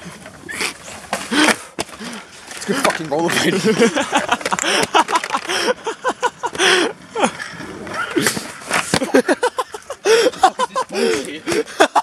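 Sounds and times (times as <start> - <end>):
young men talking and exclaiming: 2.6 - 6.9, 9.1 - 12.0.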